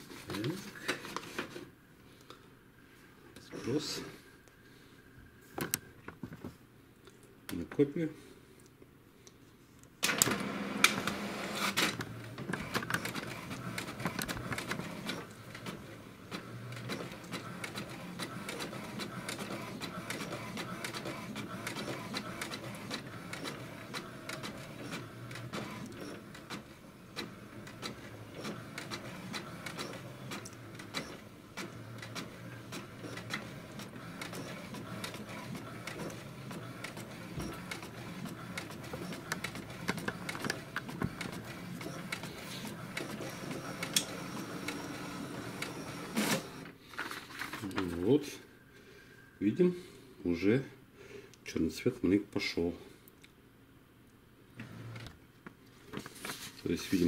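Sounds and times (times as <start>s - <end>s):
printer paper pickup clatter: 10.0s - 48.1s
printer carriage clicking: 33.2s - 41.4s.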